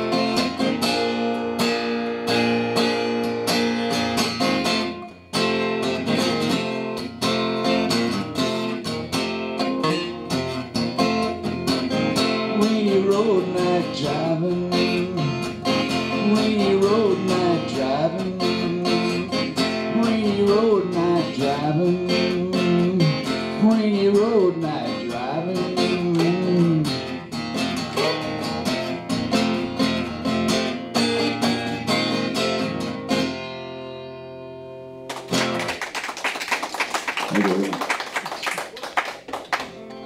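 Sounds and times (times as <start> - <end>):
acoustic guitar strumming: 0.0 - 35.7
people clapping: 35.1 - 40.0.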